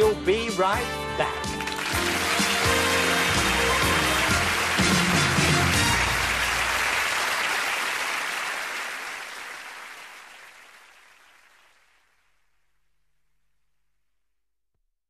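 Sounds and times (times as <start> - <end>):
theme music: 0.0 - 8.0
studio audience applauding: 1.2 - 12.2.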